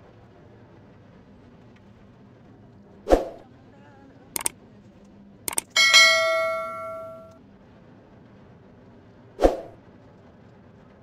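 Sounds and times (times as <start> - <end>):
mouse clicks: 5.5 - 5.8
bright bell ding: 5.5 - 7.3.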